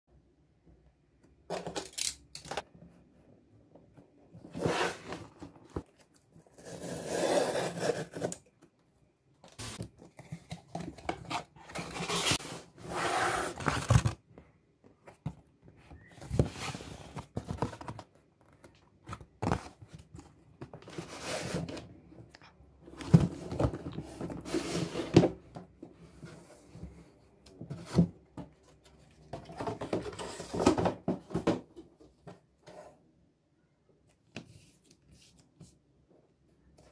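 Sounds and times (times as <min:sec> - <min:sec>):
cardboard box tearing and scraping: 0:11.7 - 0:14.0.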